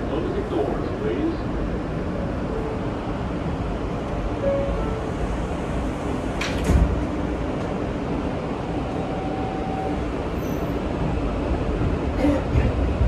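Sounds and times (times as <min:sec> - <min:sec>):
sliding doors closing with thud: 0:06.1 - 0:07.9.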